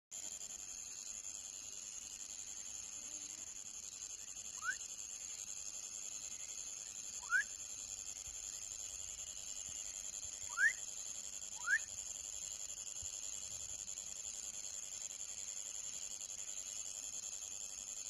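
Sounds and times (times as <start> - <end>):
frog whistling calls: 4.5 - 4.9, 7.1 - 7.6, 10.4 - 10.9, 11.5 - 11.9.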